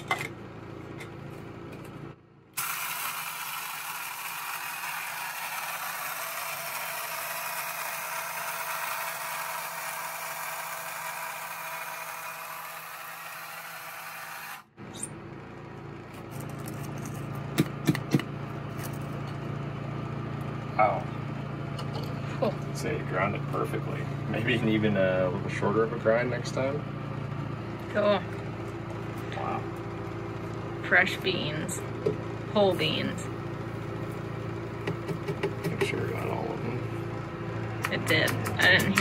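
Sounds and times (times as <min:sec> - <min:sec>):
coffee grinder whirring: 0:02.6 - 0:14.8, 0:32.8 - 0:39.0.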